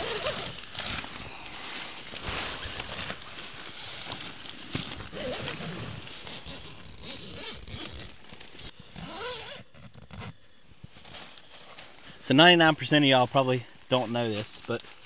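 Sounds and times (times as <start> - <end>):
tent zipper being pulled: 0.0 - 1.2, 2.2 - 10.4
tent fabric rustling: 0.0 - 15.0.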